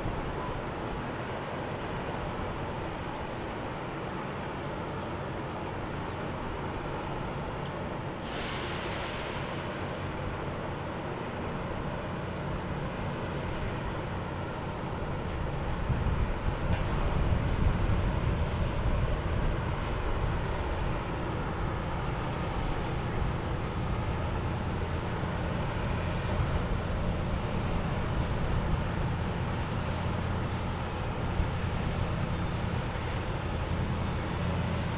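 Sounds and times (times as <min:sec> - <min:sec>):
motorboat engines rumbling: 0:09.4 - 0:34.9.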